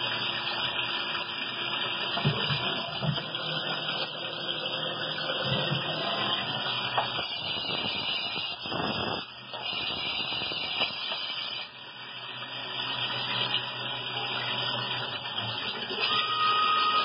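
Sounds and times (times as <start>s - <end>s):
cnc machine cutting with coolant: 0.0s - 17.0s
high hiss over low hum: 6.4s - 10.9s.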